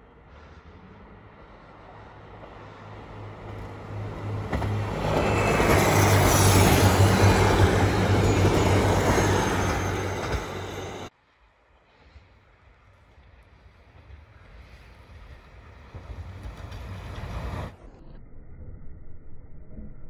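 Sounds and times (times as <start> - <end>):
diesel train passing: 0.0 - 18.1.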